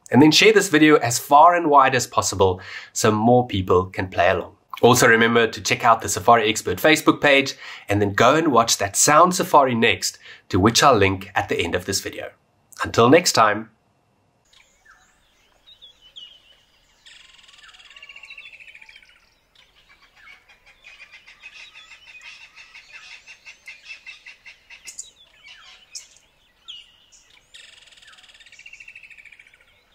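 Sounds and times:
bird-like chirping and trilling: 0:14.4 - 0:29.9.

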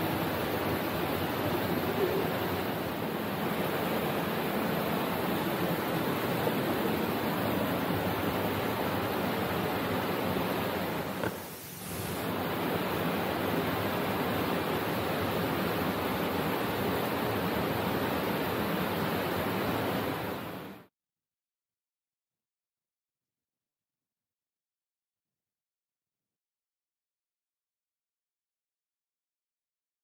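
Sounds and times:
waterfall rushing over boulders: 0:00.0 - 0:20.8.

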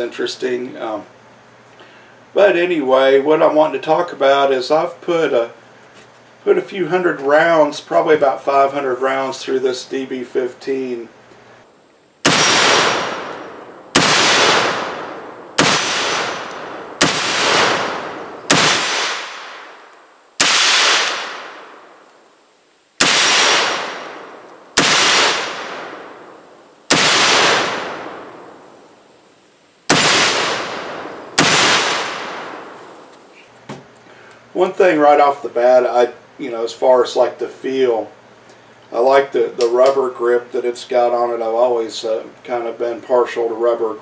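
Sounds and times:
gunshots with long echo: 0:12.2 - 0:22.1, 0:23.0 - 0:28.9, 0:29.9 - 0:33.1.

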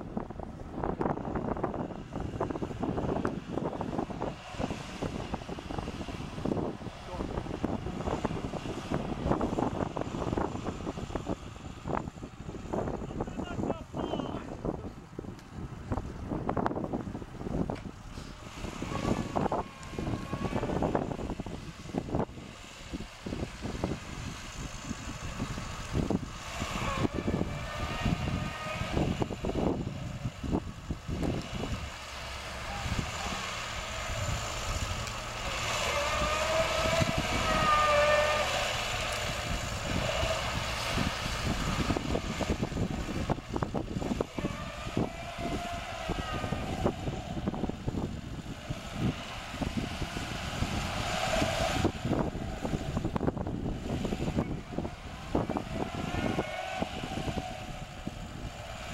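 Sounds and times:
car engine revving hard: 0:18.2 - 0:58.9.

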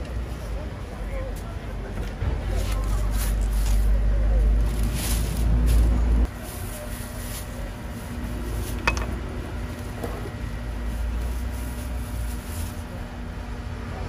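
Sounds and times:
street market background hum: 0:00.0 - 0:14.0
plastic glove rustling: 0:02.6 - 0:09.0, 0:10.8 - 0:13.0.

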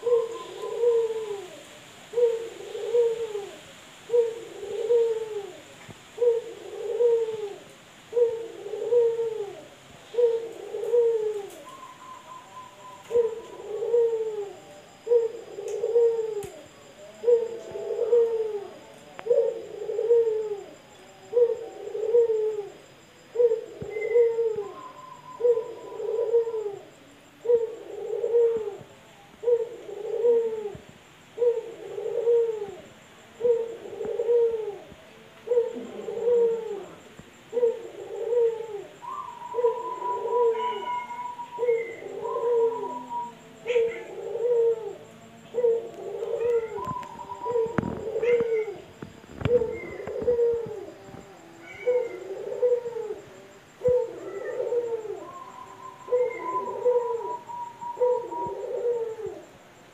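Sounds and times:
dove cooing: 0:00.0 - 0:59.9
higher drawn-out bird call: 0:39.0 - 0:44.8.

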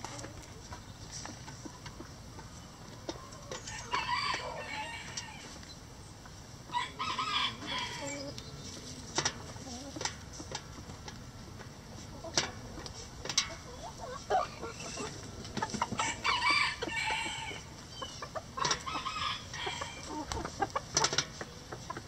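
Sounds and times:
hens clucking: 0:00.0 - 0:22.0
rooster crowing: 0:03.7 - 0:05.5, 0:06.7 - 0:08.3, 0:16.0 - 0:17.7, 0:18.8 - 0:20.2.

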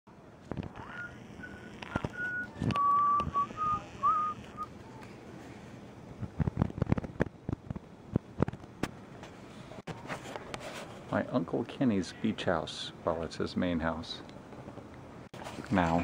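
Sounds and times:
person whistling: 0:00.9 - 0:04.7
sharp clicks and knocks: 0:06.2 - 0:09.4.

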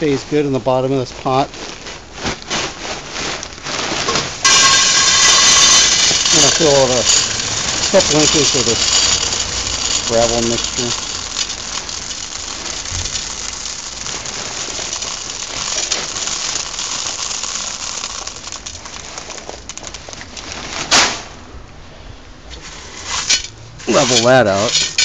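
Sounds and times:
gravel pouring into pot: 0:04.4 - 0:20.4, 0:23.9 - 0:25.0.

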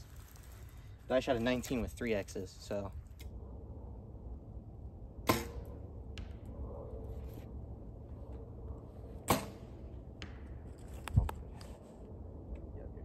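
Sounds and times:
faint arrow tap: 0:09.2 - 0:09.6.

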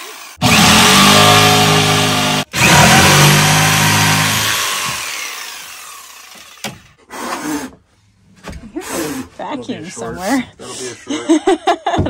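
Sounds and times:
power tool cutting wood: 0:00.0 - 0:07.8.

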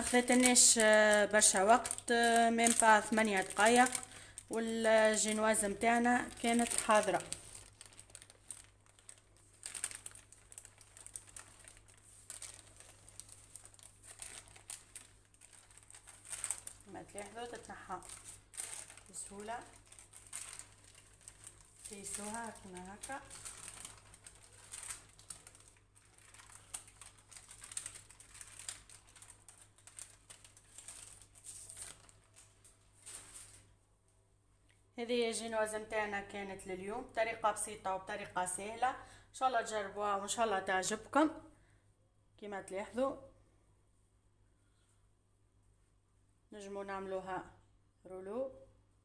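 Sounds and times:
baking paper rustling and crinkling: 0:00.0 - 0:33.9.

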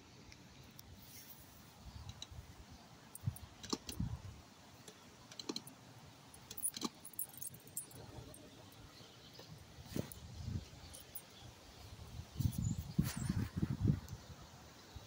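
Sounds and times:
leash and collar jingling: 0:06.4 - 0:09.0, 0:10.8 - 0:11.4.

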